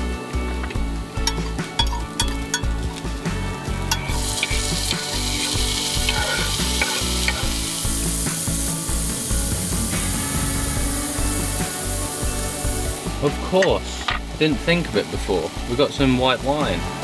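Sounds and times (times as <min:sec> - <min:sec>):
vegetables sizzling in a frying pan: 0:00.9 - 0:17.0
utensil clinking against pan: 0:01.2 - 0:02.8, 0:03.9 - 0:07.6.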